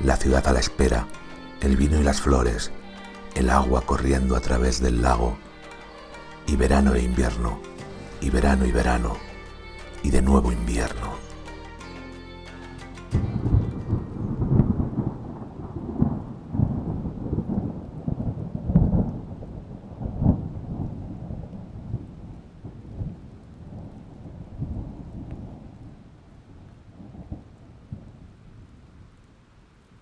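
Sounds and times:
rain: 0.0s - 9.2s, 13.3s - 30.0s
rolling thunder: 13.4s - 28.8s.

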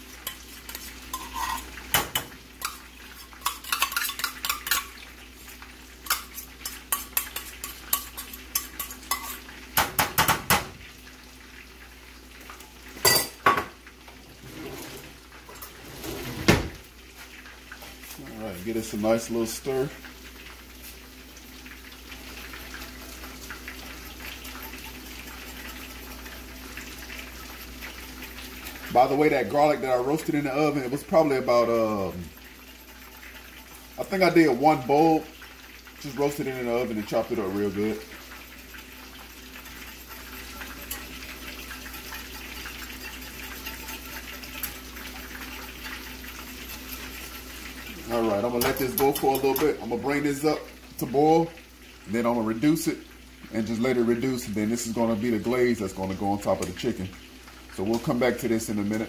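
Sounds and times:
whisk stirring sauce in a pan: 0.0s - 10.6s, 21.6s - 51.5s
chicken sizzling in oil: 0.0s - 59.0s.

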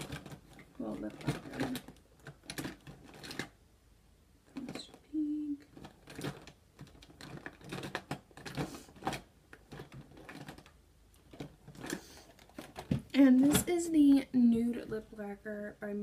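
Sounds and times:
clicks taps and rustles: 0.0s - 3.6s, 4.5s - 15.3s.

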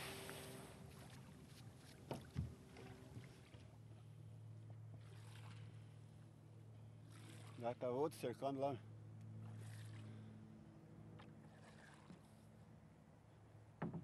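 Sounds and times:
faint water noise: 0.0s - 12.8s
low steady hum: 0.0s - 14.0s
light knocks on boat: 2.0s - 3.3s, 13.8s - 14.0s.

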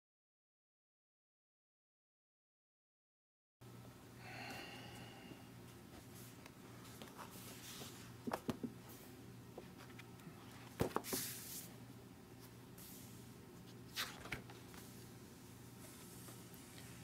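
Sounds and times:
steady low hum: 3.6s - 17.0s
book pages rustling: 13.6s - 15.0s.

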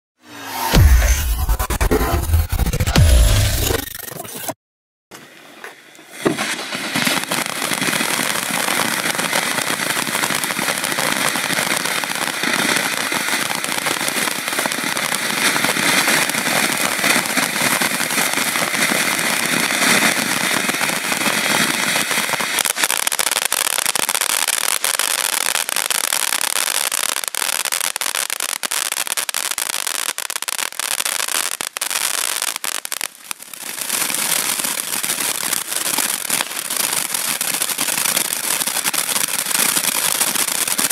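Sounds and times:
firework fountain hissing: 5.2s - 27.2s, 31.6s - 40.9s
firework crackling: 6.1s - 40.9s.

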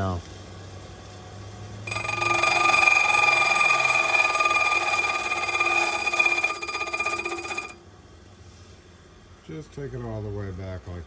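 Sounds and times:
bench grinder grinding metal key: 1.9s - 7.8s.

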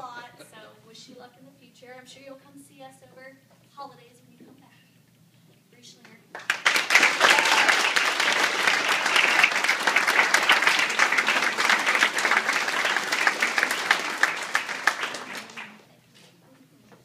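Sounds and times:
audience applauding: 6.3s - 15.9s.

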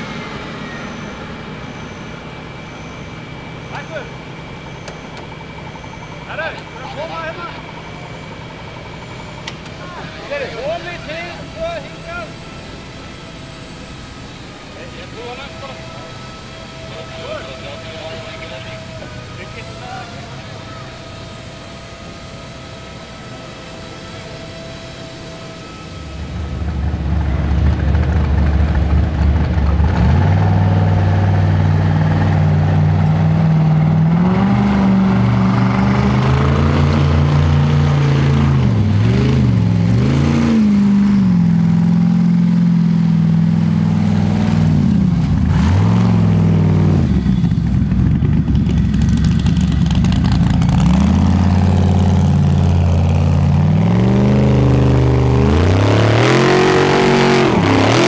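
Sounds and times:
buggy engine revving hard: 26.6s - 58.0s.

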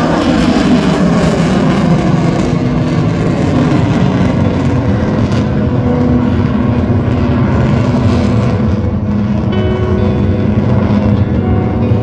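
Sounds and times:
airplane engine drone overhead: 0.0s - 12.0s.

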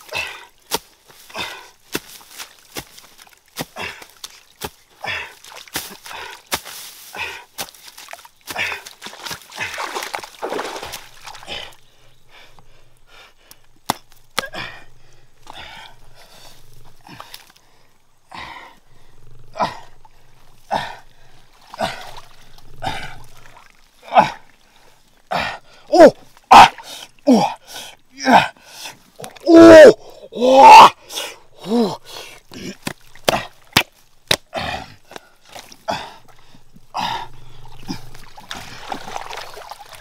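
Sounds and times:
hands scraping through soil: 0.0s - 11.6s
stick jabbing into wet mud: 5.4s - 11.4s, 13.5s - 14.8s, 32.5s - 35.7s.

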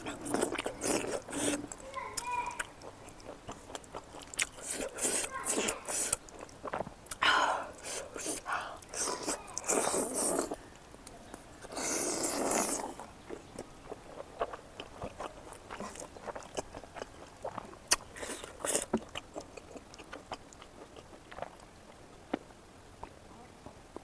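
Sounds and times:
slurps: 0.0s - 2.3s, 3.2s - 10.7s, 11.3s - 16.7s
person chewing and lip smacking: 0.0s - 23.2s.

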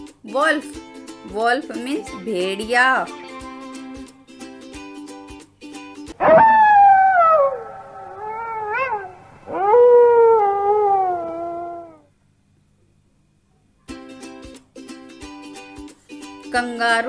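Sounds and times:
wolf howling: 6.2s - 12.1s.

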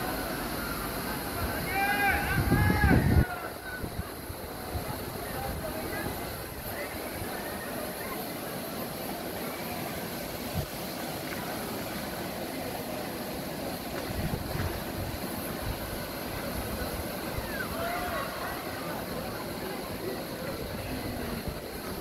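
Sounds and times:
river water rushing: 0.0s - 22.0s
wind buffeting microphone: 2.2s - 6.6s, 14.0s - 17.8s.

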